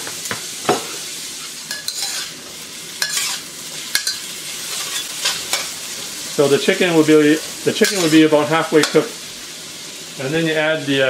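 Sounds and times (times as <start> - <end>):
food sizzling in wok: 0.0 - 11.0
metal spatula scraping wok: 1.7 - 2.4, 3.0 - 5.8, 7.7 - 9.0.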